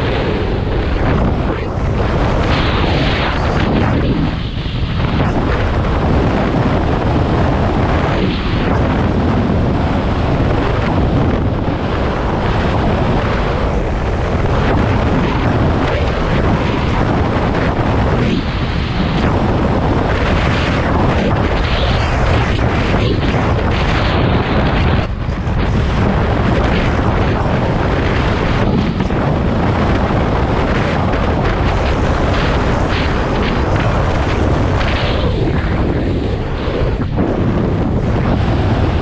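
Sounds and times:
wind buffeting microphone: 0:00.0 - 0:39.0.

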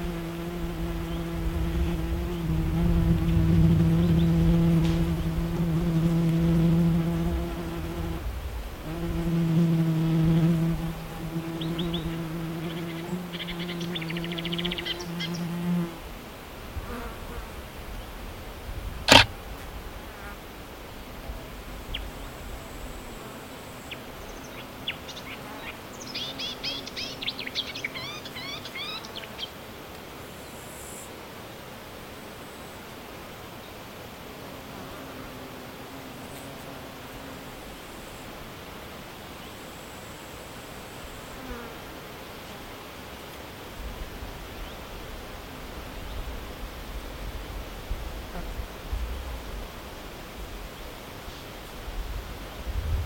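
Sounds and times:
insect buzzing: 0:00.0 - 0:16.0, 0:19.1 - 0:19.4
sharp click: 0:19.1 - 0:19.3.

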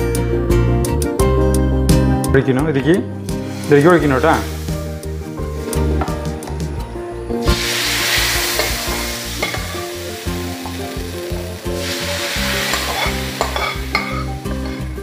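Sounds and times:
spice powder sizzling in oil: 0:03.3 - 0:05.7, 0:07.4 - 0:15.0
ladle scraping pan: 0:07.5 - 0:09.9, 0:11.8 - 0:15.0.

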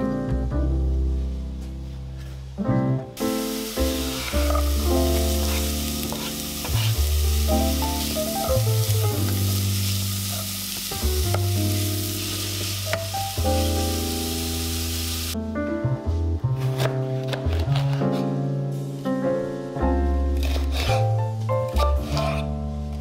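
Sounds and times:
background music: 0:00.0 - 0:23.0
vegetables sizzling in hot oil: 0:03.2 - 0:15.4
wooden spatula stirring pot: 0:04.1 - 0:07.1.

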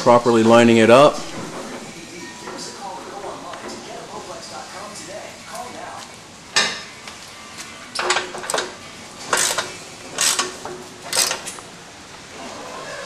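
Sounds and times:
ratchet wrench clicking: 0:09.3 - 0:10.5, 0:11.1 - 0:11.6.

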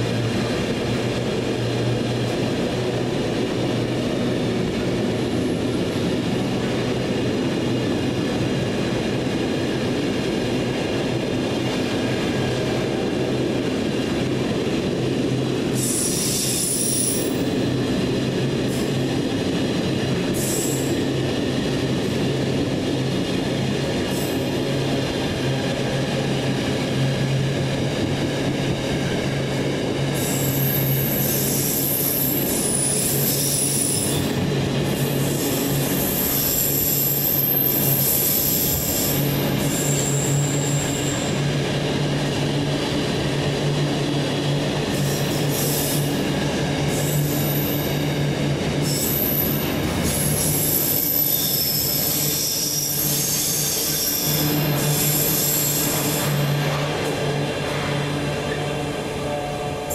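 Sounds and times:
freight train wheels rumbling: 0:00.0 - 0:59.9
high-pitched wheel squeal: 0:50.3 - 0:56.6.

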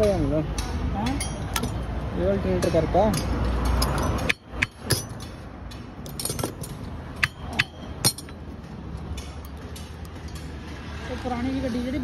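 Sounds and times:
metal tools clinking and knocking: 0:01.0 - 0:01.8, 0:02.6 - 0:10.8.

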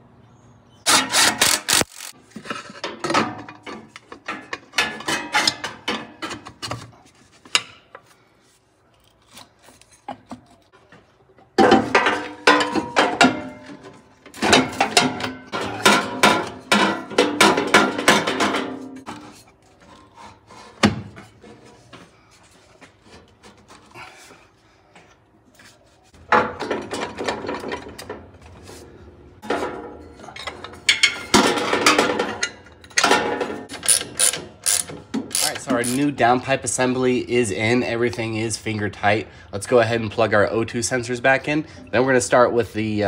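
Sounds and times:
metal pipes clanking and scraping: 0:02.3 - 0:08.1, 0:09.6 - 0:22.0, 0:26.1 - 0:37.1.

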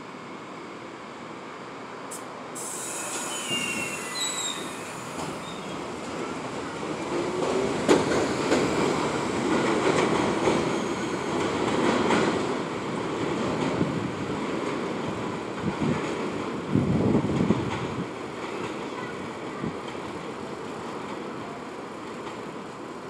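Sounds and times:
subway train running noise: 0:00.0 - 0:23.0
high wheel squeals: 0:02.7 - 0:05.9.

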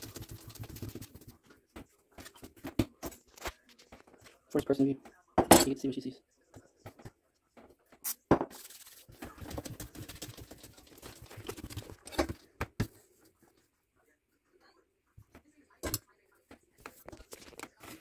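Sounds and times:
hand patting and rubbing dough: 0:00.0 - 0:03.0, 0:06.4 - 0:13.7.

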